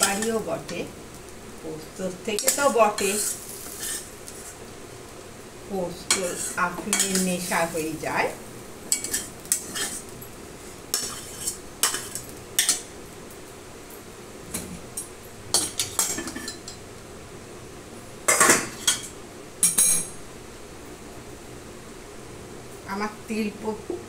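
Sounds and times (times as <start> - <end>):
spatula scraping steel pan: 3.0 - 4.6, 6.1 - 7.2, 8.9 - 10.0, 11.0 - 12.2.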